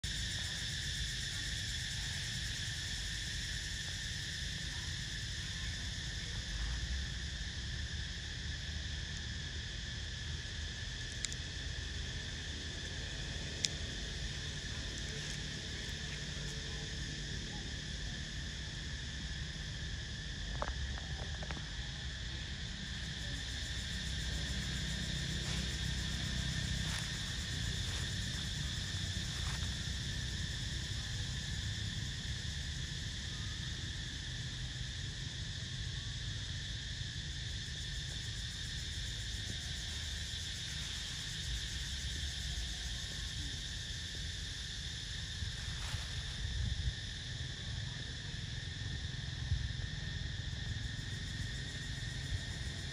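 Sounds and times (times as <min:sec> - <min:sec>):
insects droning: 0:00.0 - 0:52.9
faint ticks: 0:11.1 - 0:11.4.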